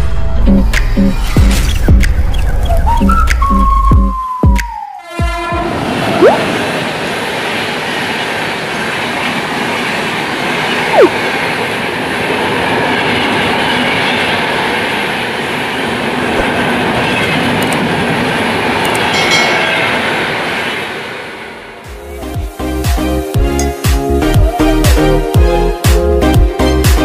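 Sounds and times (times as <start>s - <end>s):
sharp falling-pitch sound: 6.2s - 6.4s, 10.9s - 11.2s.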